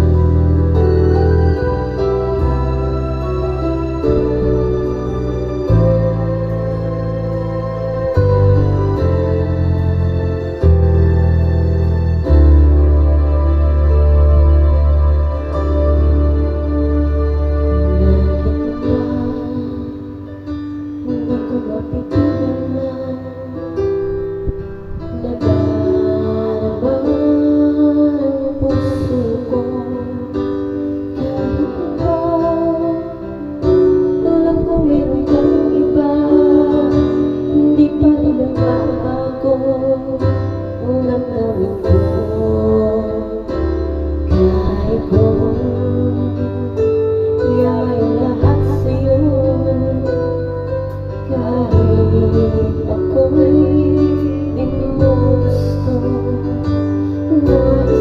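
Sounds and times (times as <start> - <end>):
acoustic guitar backing music: 0.0 - 58.0
woman singing into microphone: 17.8 - 58.0.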